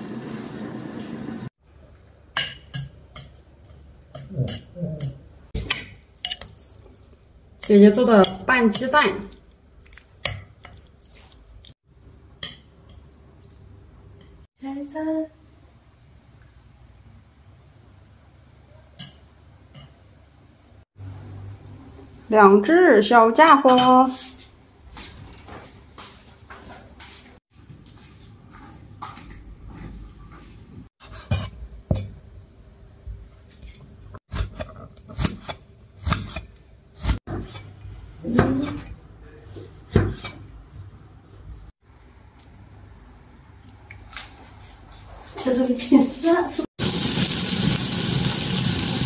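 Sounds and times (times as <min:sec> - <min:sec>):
tableware clinking: 0:02.3 - 0:03.4
dishes and cutlery clinking: 0:02.3 - 0:09.0, 0:18.9 - 0:20.0.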